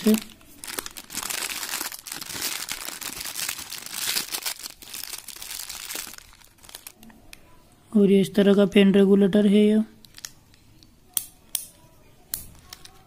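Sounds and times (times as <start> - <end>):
plastic bag crinkling: 0.0 - 7.0, 10.0 - 10.4.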